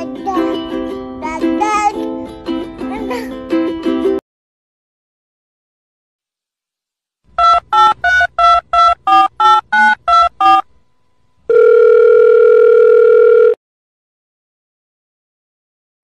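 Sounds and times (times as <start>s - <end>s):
keypad dialing beeps: 7.4s - 10.6s
telephone line tone: 7.4s - 10.6s, 11.5s - 13.6s.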